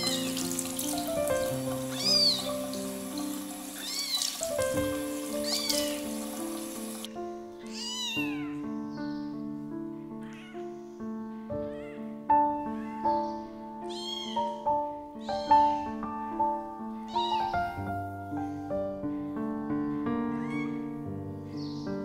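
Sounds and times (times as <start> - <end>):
background music of held notes: 0.0 - 22.0
kitten meowing: 1.9 - 2.5, 3.8 - 4.4, 5.4 - 6.1, 7.6 - 8.7, 10.2 - 10.7, 11.6 - 14.6, 15.2 - 16.0, 17.0 - 17.9, 20.3 - 20.9.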